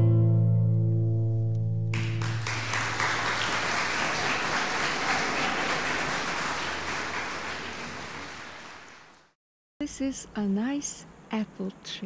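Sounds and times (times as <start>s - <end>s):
audience applause: 2.0s - 9.4s.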